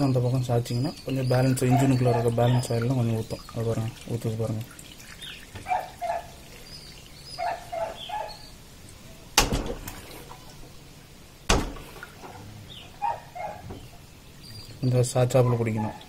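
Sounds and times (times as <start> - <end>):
birds chirping: 0.0 - 16.0
sharp knocks: 9.4 - 10.0, 11.5 - 12.0.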